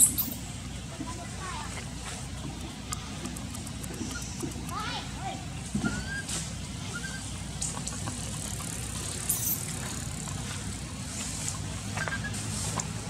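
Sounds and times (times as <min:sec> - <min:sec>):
low mechanical hum: 0:00.0 - 0:13.0
brief high squeaks: 0:05.8 - 0:07.3, 0:12.0 - 0:12.5.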